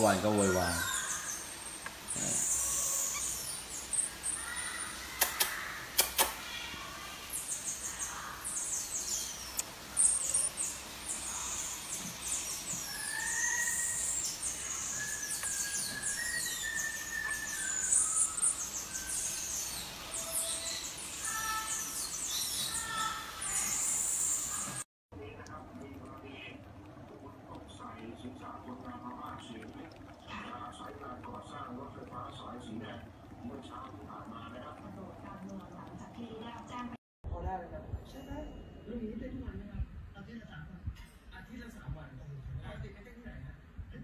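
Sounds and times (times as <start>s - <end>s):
marmoset chirps and squeaks: 0.5s - 5.6s, 7.3s - 24.8s
sharp clicks: 5.2s - 6.4s
marmoset whistle-like notes: 12.4s - 22.7s.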